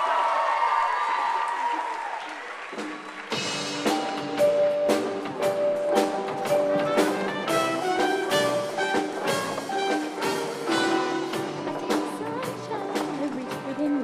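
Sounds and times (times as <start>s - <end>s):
drum beat: 2.8s - 13.7s
band playing upbeat instrumental: 3.2s - 14.0s.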